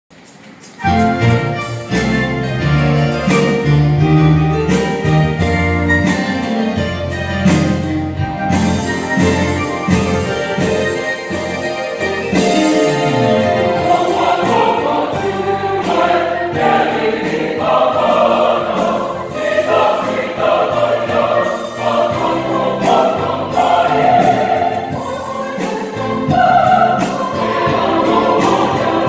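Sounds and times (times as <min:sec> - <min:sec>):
choir singing a hymn: 0:09.2 - 0:29.0.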